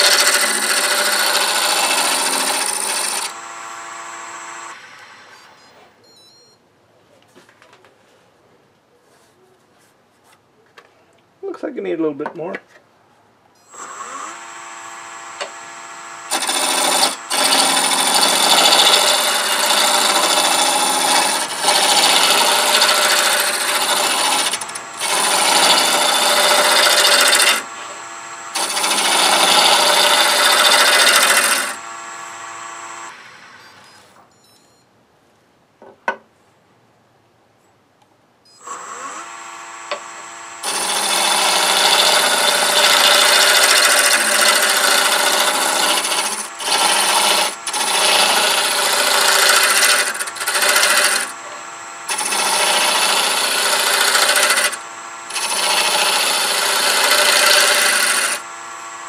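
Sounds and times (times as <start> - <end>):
turning tool scraping wood: 0.0 - 3.4, 15.2 - 32.4, 38.6 - 58.5
lathe motor hum: 0.0 - 5.3, 13.8 - 33.6, 38.7 - 59.0.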